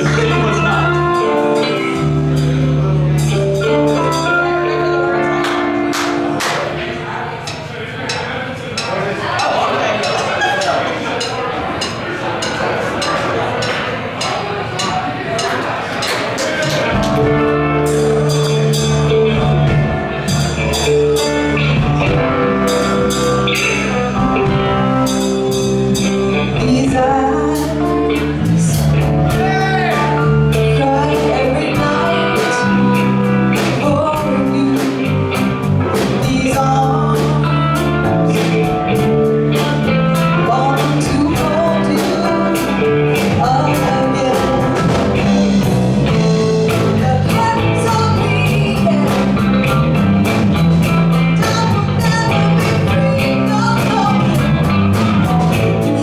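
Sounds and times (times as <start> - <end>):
drum kit beat: 0.0 - 56.0
live rock band playing: 0.0 - 56.0
person singing: 22.7 - 39.0, 39.6 - 45.7.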